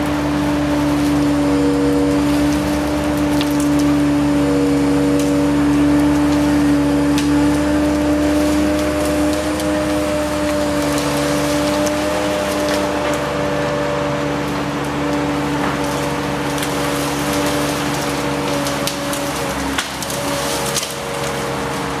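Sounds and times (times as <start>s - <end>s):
engine and hydraulic hum: 0.0s - 22.0s.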